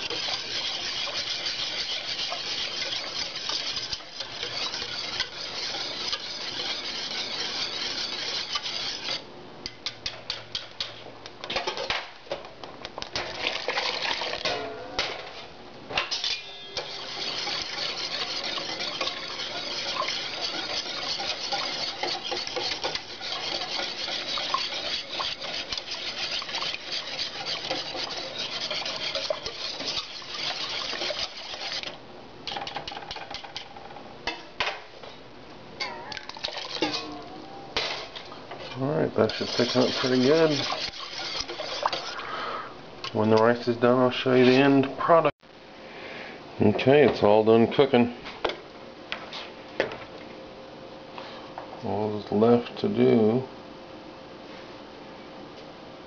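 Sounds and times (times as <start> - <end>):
whisk scraping a metal pot: 0.0 - 11.0, 13.2 - 14.5, 16.1 - 33.9, 36.2 - 44.8.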